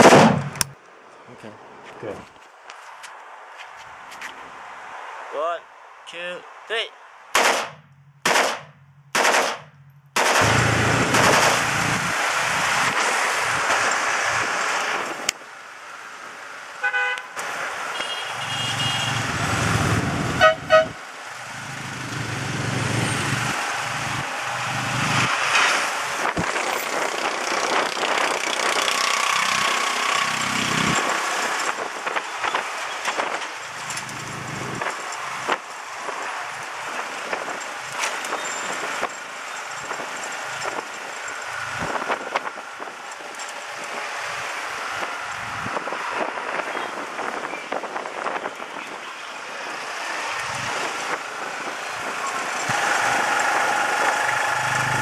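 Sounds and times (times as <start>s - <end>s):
riding through city traffic: 0.0s - 55.0s
automatic rifle fire: 7.4s - 11.7s
vehicle horns tooting: 16.8s - 19.4s, 20.3s - 21.0s.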